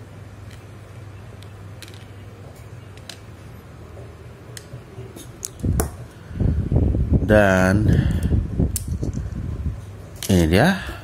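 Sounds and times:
steady low hum: 0:00.0 - 0:11.0
small metal parts clicking: 0:01.4 - 0:02.1.

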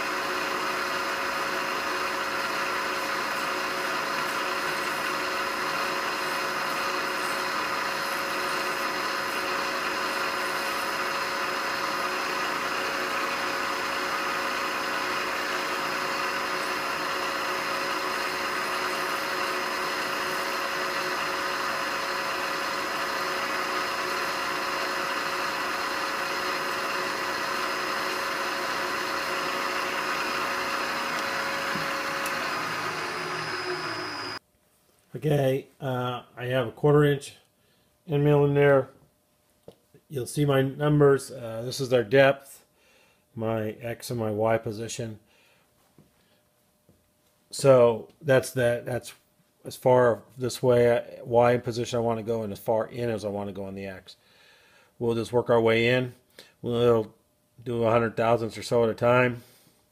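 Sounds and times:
milling machine spindle whine: 0:00.0 - 0:34.4.

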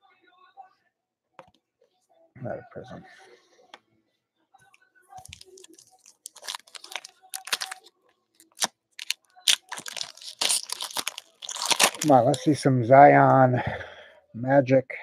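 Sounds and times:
wrapper crinkling and tearing: 0:05.2 - 0:12.5.

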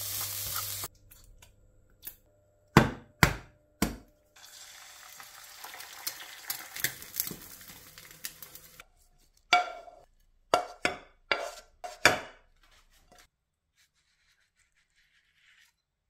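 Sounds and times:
egg sizzling in a pan: 0:00.0 - 0:00.9, 0:04.4 - 0:08.8.

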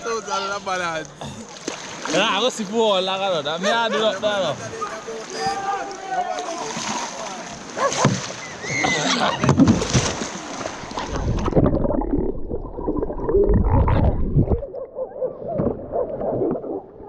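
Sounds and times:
water splashing: 0:00.6 - 0:17.0
muffled underwater gurgling: 0:10.9 - 0:17.0.

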